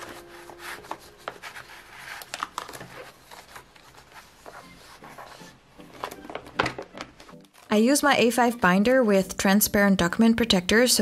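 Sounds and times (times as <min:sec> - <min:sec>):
paper and plastic sleeve rustling: 0:00.0 - 0:08.0.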